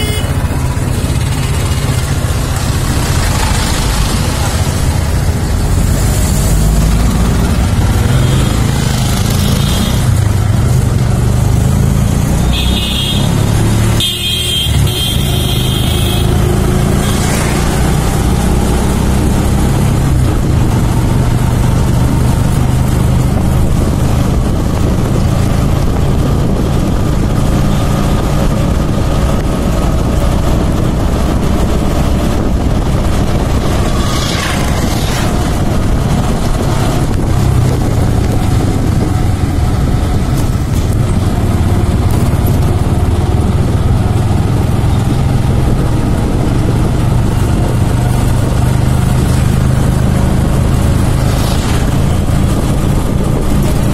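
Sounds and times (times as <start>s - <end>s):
horn honking: 0.0s - 0.6s, 12.4s - 17.5s
vehicle engine drone and road noise: 0.0s - 53.9s.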